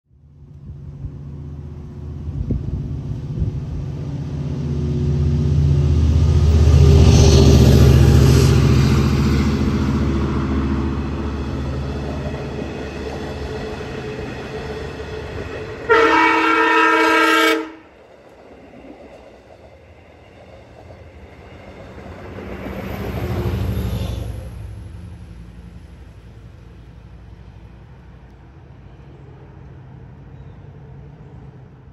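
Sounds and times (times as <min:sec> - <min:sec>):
train rumbling past: 0:00.2 - 0:31.9
train horn blast: 0:15.4 - 0:18.0.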